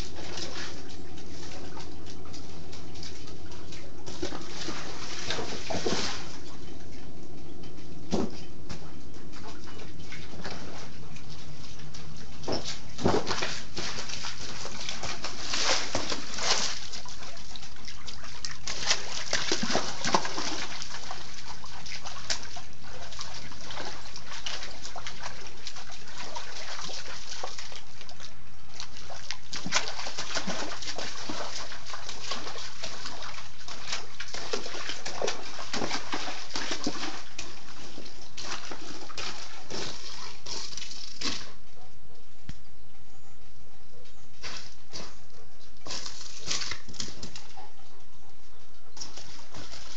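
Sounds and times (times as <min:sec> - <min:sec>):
dog splashing in water: 0:00.0 - 0:06.6, 0:09.4 - 0:41.6.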